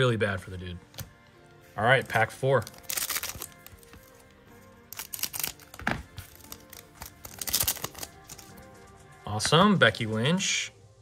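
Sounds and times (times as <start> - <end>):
quiet background music: 0.0 - 11.0
card pack wrapper crinkling: 2.0 - 4.2, 4.8 - 8.6.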